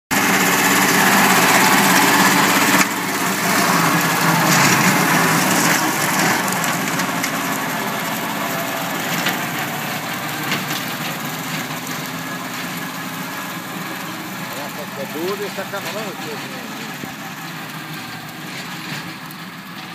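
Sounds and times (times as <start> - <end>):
tractor engine running: 0.1 - 19.9.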